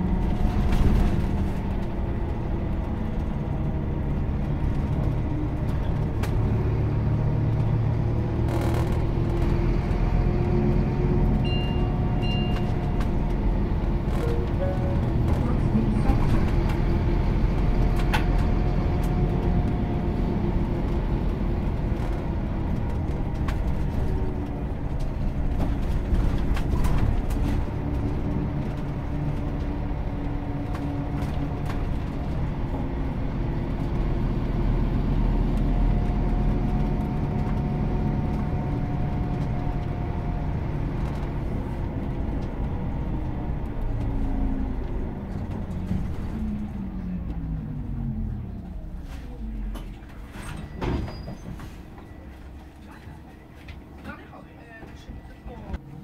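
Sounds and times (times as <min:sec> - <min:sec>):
bus drivetrain and road rumble: 0:00.0 - 0:56.0.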